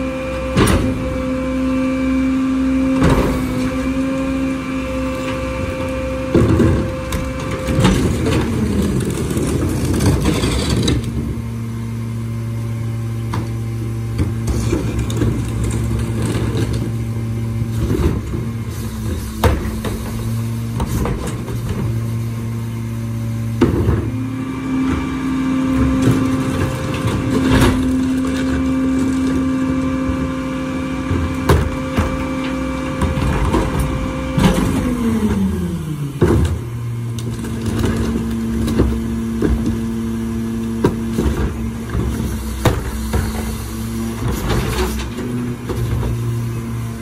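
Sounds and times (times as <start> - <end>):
diesel truck engine revving: 0.0 - 47.0
machinery clanks and knocks: 0.5 - 1.3, 2.9 - 4.1, 5.1 - 11.5, 13.3 - 22.2, 23.5 - 30.4, 31.0 - 35.6, 36.2 - 46.9.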